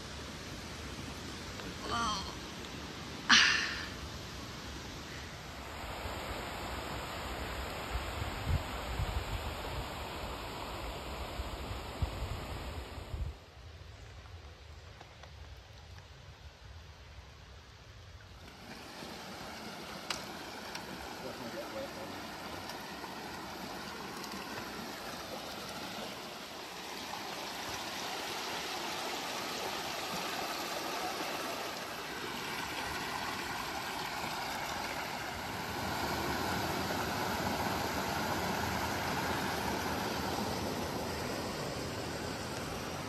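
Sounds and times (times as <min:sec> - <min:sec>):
creek rushing over rocks: 0:18.2 - 0:43.0.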